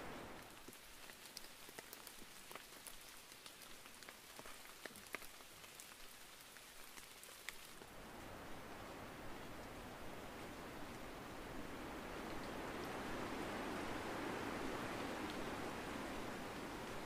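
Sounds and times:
faint rain hiss: 0.0 - 17.0
raindrops ticking: 0.2 - 7.9.

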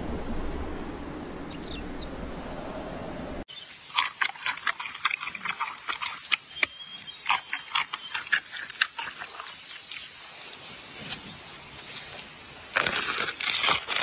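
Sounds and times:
panda crunching food: 3.9 - 10.1, 12.7 - 14.0.

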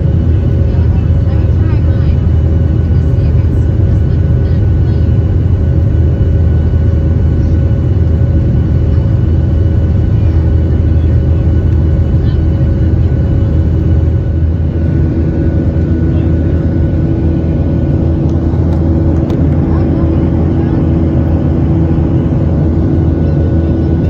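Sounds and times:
faint steady whining tones: 0.0 - 24.0
jet airliner cabin rumble: 0.0 - 24.0.

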